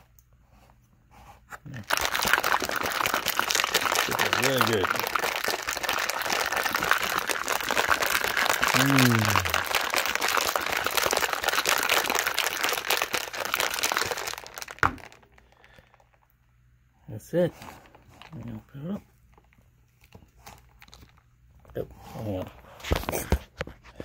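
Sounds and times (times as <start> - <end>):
ice rattling in shaker bottle: 1.7 - 16.1.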